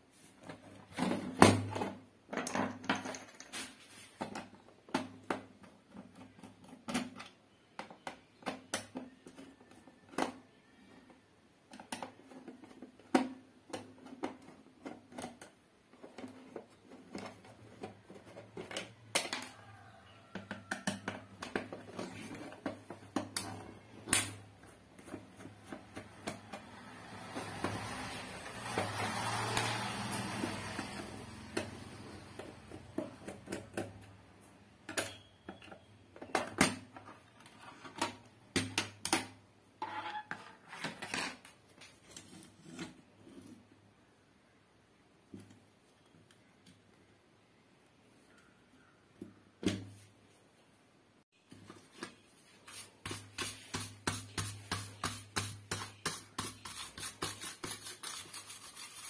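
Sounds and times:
screws dropping onto wood: 0:01.5 - 0:03.8.

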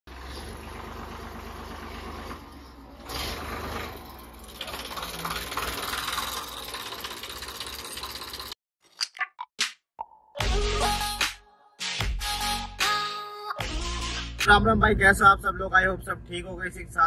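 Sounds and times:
tractor diesel engine clattering: 0:00.1 - 0:08.6.

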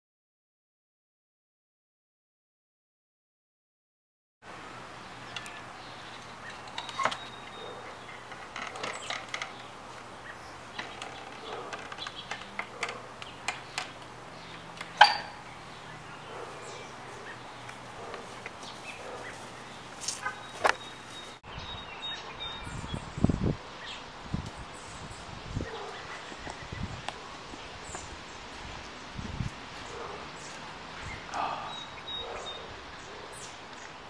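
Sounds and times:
wooden gate clicks and knocks: 0:06.4 - 0:10.1, 0:10.7 - 0:15.4.

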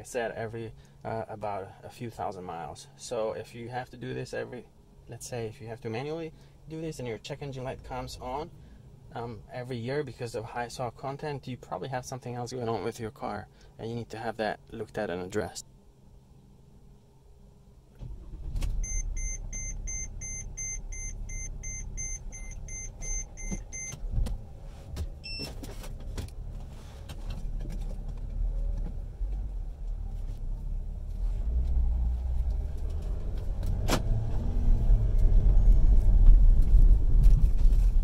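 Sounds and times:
car engine and road rumble: 0:15.7 - 0:38.0.

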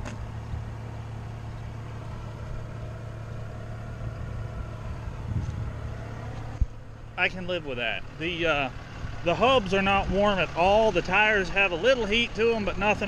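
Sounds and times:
vehicle engine idling: 0:00.0 - 0:13.0.

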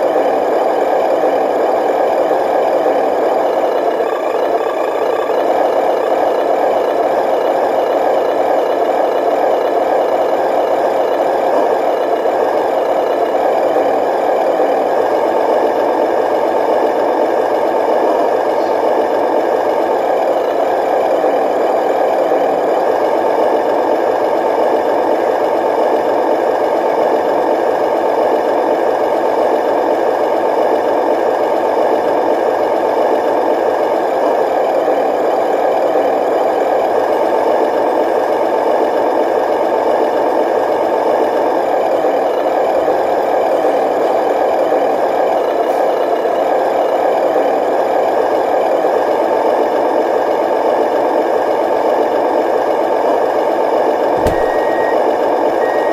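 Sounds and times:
diesel truck engine with rattle: 0:00.0 - 0:55.9.

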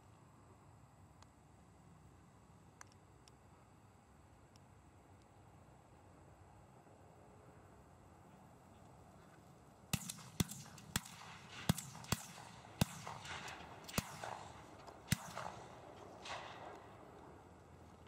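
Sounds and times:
shotgun blasts: 0:09.9 - 0:17.1.

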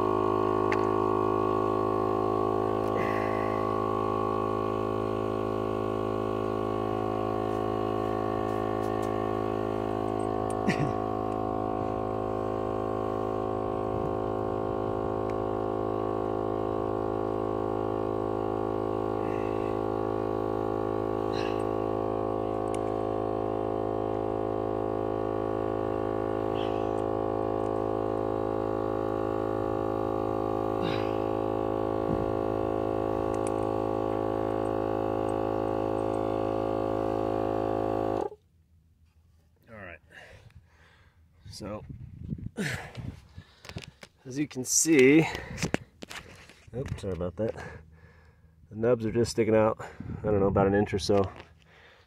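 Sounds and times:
air compressor droning: 0:00.0 - 0:52.0.

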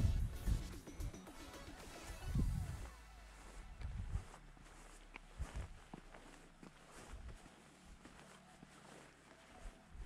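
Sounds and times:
background music: 0:00.0 - 0:04.2
footsteps on rocky shore: 0:03.4 - 0:10.0.

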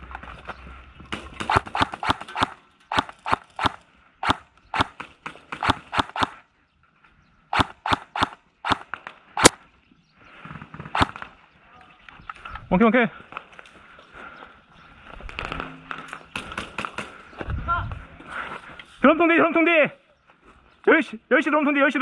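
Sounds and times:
airsoft rifle firing single shots: 0:01.2 - 0:06.4, 0:07.5 - 0:09.6, 0:10.9 - 0:11.3.

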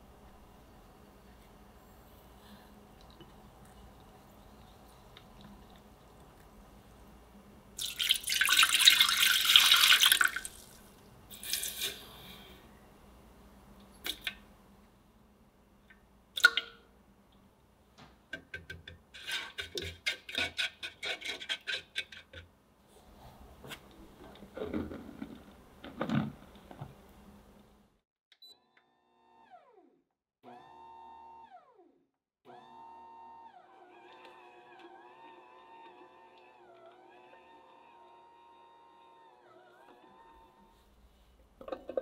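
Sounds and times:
milk pouring and splashing: 0:07.8 - 0:11.9
spatula stirring in metal pan: 0:19.2 - 0:22.4.

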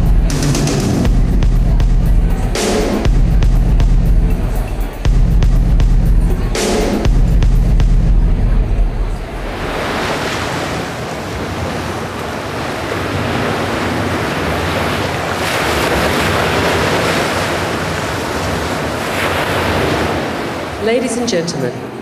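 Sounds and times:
ocean surf washing in: 0:06.3 - 0:22.0.

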